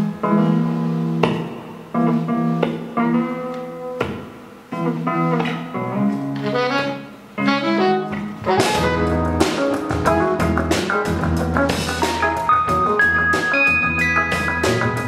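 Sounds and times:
band playing electric guitars: 0.0s - 15.0s
drum kit: 0.0s - 15.0s.

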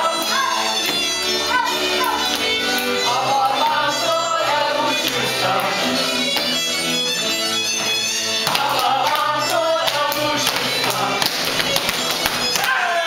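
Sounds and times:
dancers singing together: 0.0s - 6.7s, 8.3s - 13.0s
folk dance music: 0.0s - 13.0s
dance steps tapping and slapping: 7.8s - 12.7s.

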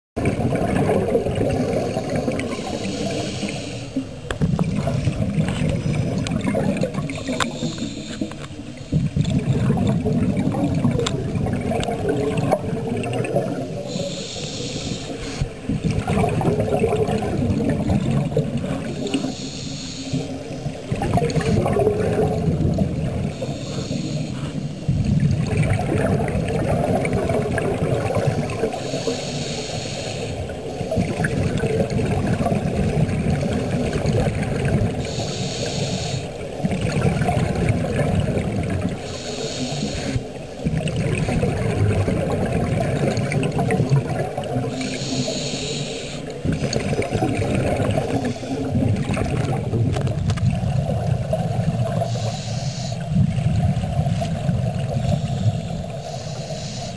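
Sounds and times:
bubbling exhales underwater: 0.2s - 14.4s, 15.1s - 19.5s, 20.2s - 29.2s, 30.3s - 45.5s, 46.2s - 52.4s, 53.0s - 56.2s
regulator hissing inhale: 1.8s - 4.2s, 7.4s - 8.9s, 13.8s - 15.6s, 19.1s - 20.8s, 23.3s - 24.8s, 28.7s - 30.8s, 35.0s - 36.4s, 39.0s - 40.3s, 44.7s - 46.4s, 48.0s - 48.7s, 52.0s - 53.2s, 55.0s - 56.9s.

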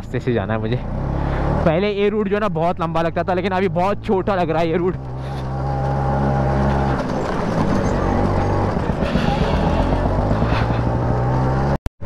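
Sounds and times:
scooter two-stroke engine running: 5.0s - 11.3s.

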